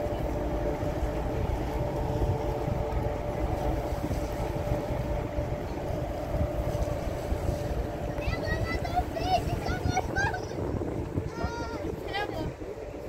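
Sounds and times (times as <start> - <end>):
ferry engines humming: 0.0 - 13.0
wind buffeting microphone: 0.0 - 13.0.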